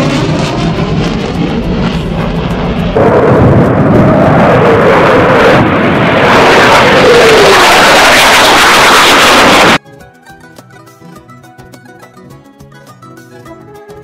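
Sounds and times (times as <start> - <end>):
falling jet whine: 0.0 - 9.8
jet engine rushing: 0.0 - 9.8.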